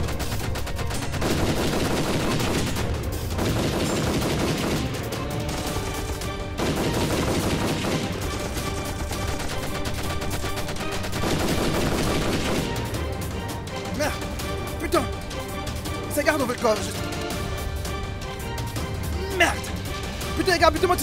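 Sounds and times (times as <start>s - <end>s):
rapid gunfire: 0.0s - 13.4s
music: 0.0s - 21.0s.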